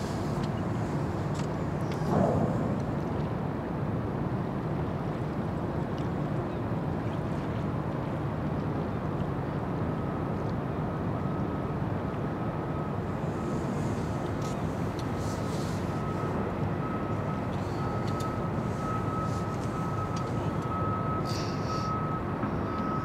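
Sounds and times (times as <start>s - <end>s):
ship machinery low rumble: 0.0s - 23.0s
faint thin whine: 12.7s - 23.0s.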